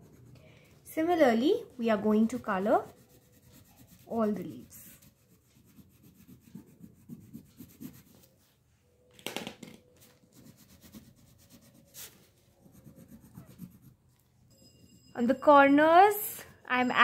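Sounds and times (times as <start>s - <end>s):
crayon scratching on paper: 0.0s - 0.4s, 2.3s - 8.3s, 10.3s - 14.0s.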